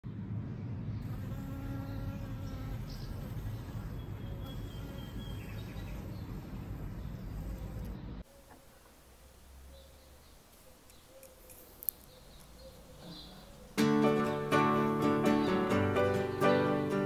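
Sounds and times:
steady low rumble: 0.0s - 1.2s
insect buzzing: 1.0s - 12.1s.

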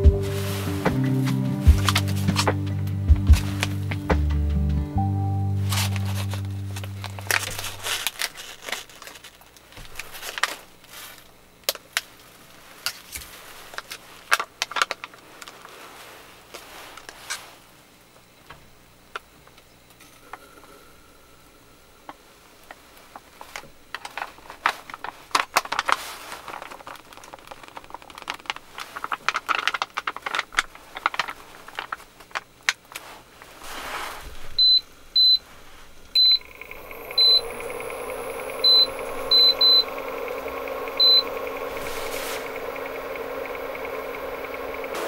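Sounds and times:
cooktop electric hum and fan: 0.0s - 45.0s
plastic pouch crinkling wetly: 5.8s - 17.4s, 23.2s - 33.7s
cooktop control panel beeps: 34.6s - 35.4s, 36.2s - 45.0s.

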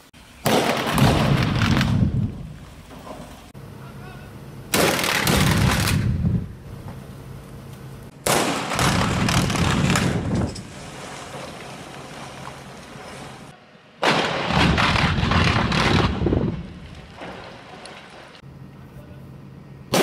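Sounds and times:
rumbling after blast: 8.2s - 11.0s, 14.0s - 17.7s.

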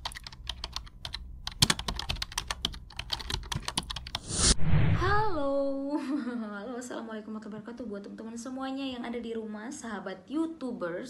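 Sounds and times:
keyboard typing clicks: 0.0s - 4.2s.

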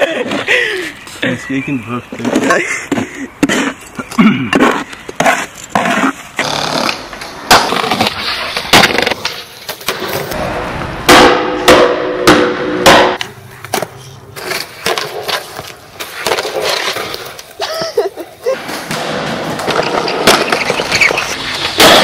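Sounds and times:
skateboard cracking and slapping: 4.6s - 10.3s, 13.7s - 17.7s, 18.6s - 22.0s
skateboard wheels rolling: 4.8s - 10.9s, 13.3s - 22.0s.

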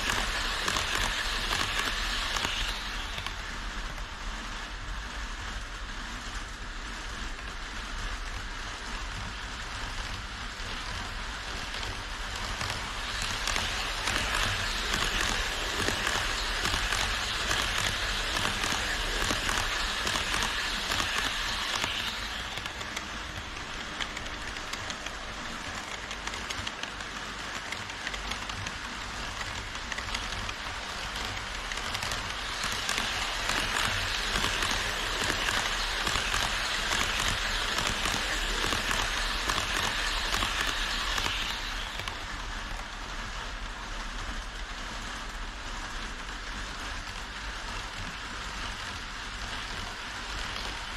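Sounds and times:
model train wheels rattling: 0.0s - 4.1s, 10.6s - 42.9s.

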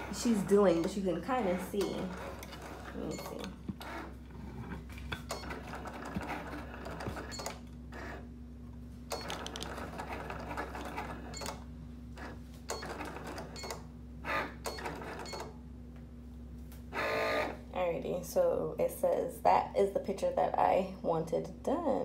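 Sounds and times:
cutting machine motors running: 0.0s - 8.3s.

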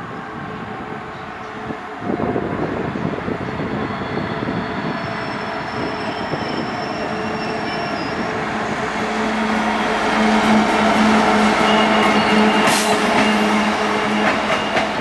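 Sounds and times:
diesel locomotive passing: 0.0s - 15.0s
high wheel squeal: 3.3s - 8.7s, 9.6s - 15.0s.

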